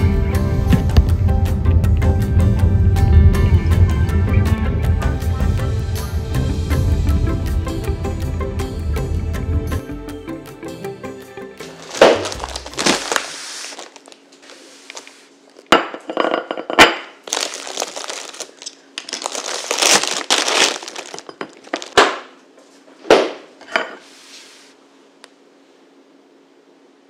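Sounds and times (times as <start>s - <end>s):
plastic bag crinkling: 11.8s - 15.3s, 17.2s - 22.3s.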